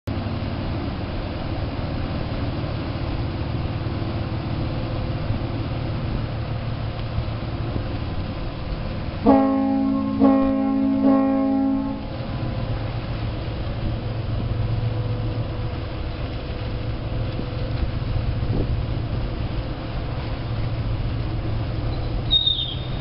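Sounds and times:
churning propulsion wash: 0.1 - 23.0
ferry engines running: 0.1 - 23.0
ship's horn blasts: 9.2 - 13.2.

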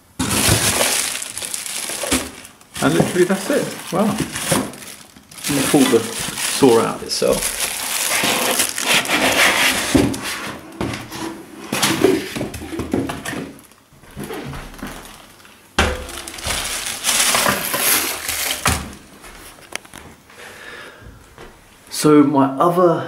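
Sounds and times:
cardboard and plastic rustling: 0.0 - 20.3
sudden knock: 15.8 - 16.7.

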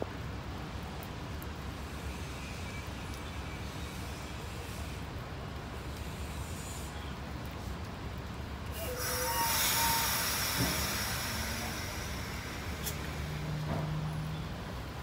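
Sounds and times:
train coaches rumbling past: 2.2 - 15.0
wheel squeals: 8.8 - 11.8
loud hiss: 8.8 - 14.3.

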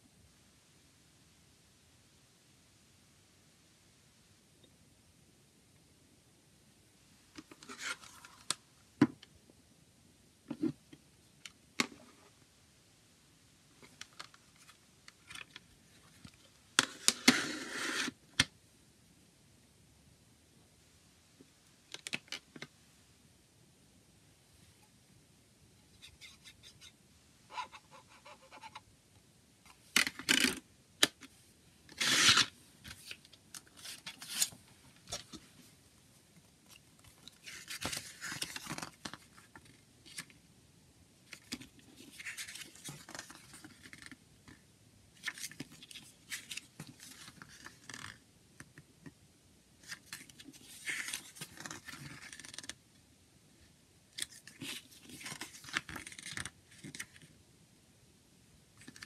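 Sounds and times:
paper pages turning: 37.2 - 40.3, 41.3 - 44.2, 45.2 - 48.2, 49.8 - 52.8, 54.2 - 57.2.

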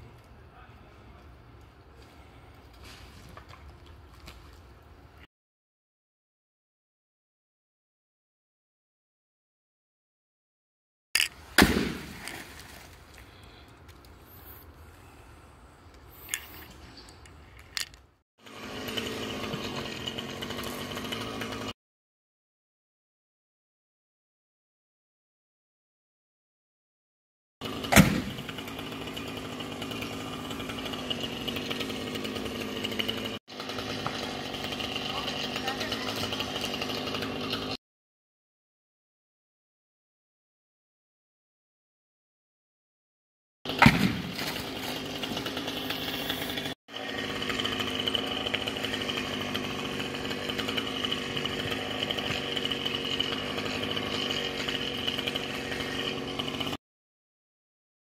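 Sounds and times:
chainsaw engine running: 11.2 - 16.8, 17.6 - 21.8, 27.6 - 37.8, 43.7 - 56.8
log landing thump: 11.5 - 12.9, 27.8 - 28.4, 43.7 - 44.7.

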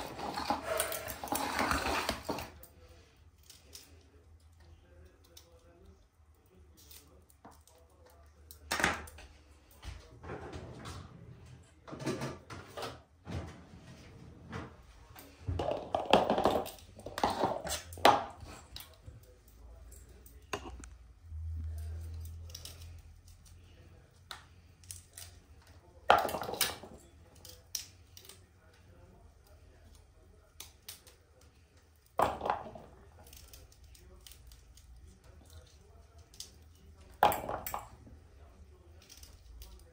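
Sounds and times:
kitchenware clattering: 0.0 - 2.6, 10.1 - 18.7.

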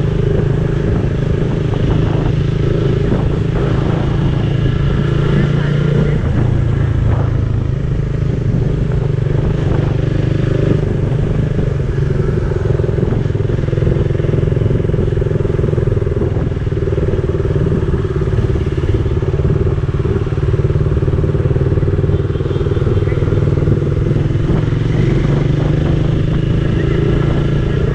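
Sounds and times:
motorcycle engine cruising: 0.0 - 27.9
road and wind noise: 0.0 - 27.9.

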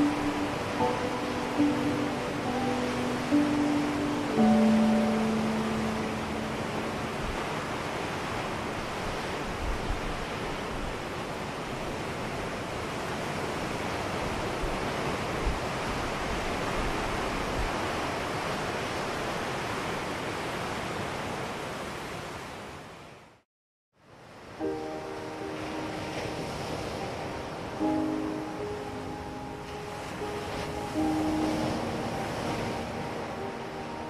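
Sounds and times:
ocean surf washing: 0.0 - 23.2, 24.0 - 34.0.

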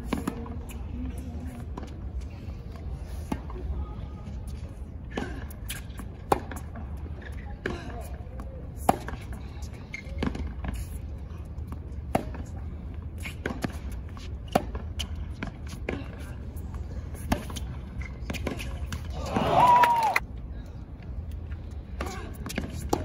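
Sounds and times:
tennis ball bouncing: 0.0 - 0.5, 5.1 - 9.4, 10.0 - 10.9, 11.6 - 16.3, 17.2 - 19.2, 22.0 - 23.0
tennis ball hitting racket: 8.8 - 9.3, 12.1 - 12.5, 13.2 - 16.2, 17.2 - 19.2.

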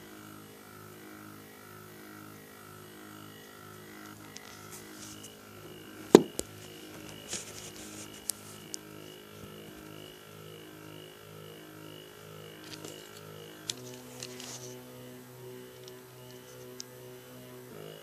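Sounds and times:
sharp knock: 6.1 - 6.4.

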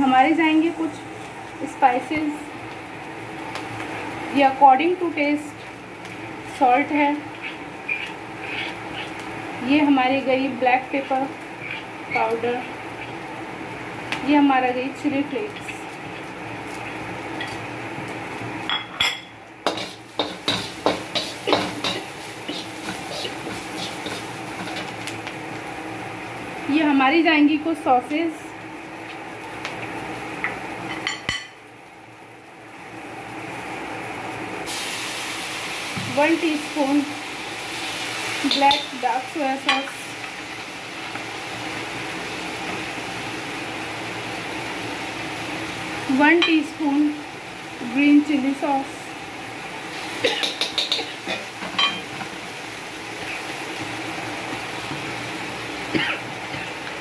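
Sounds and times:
vegetables sizzling in wok: 0.0 - 57.0
metal spatula clinking on wok: 50.4 - 51.1.

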